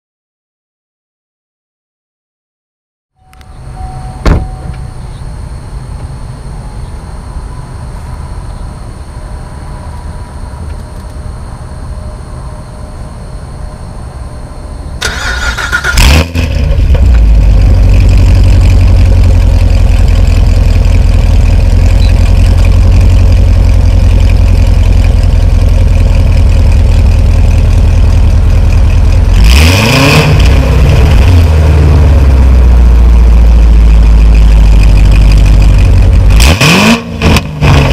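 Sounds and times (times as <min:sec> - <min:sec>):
loud engine idling: 0:15.0 - 0:36.5
car engine starting: 0:15.0 - 0:37.9
engine revving: 0:15.0 - 0:37.9.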